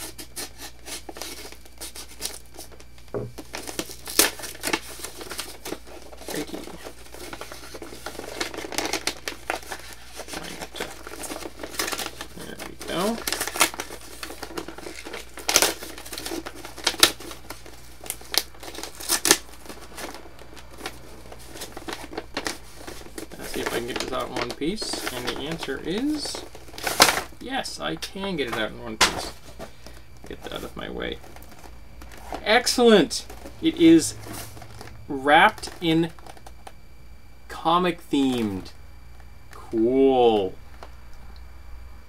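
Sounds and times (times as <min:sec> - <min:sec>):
package wrapping tearing: 0:00.0 - 0:27.4.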